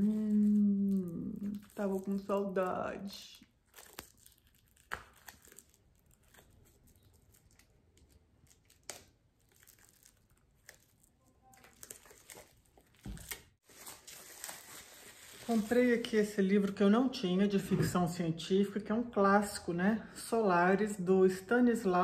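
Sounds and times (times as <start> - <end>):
plastic wrapping crinkling and tearing: 0.0 - 16.8.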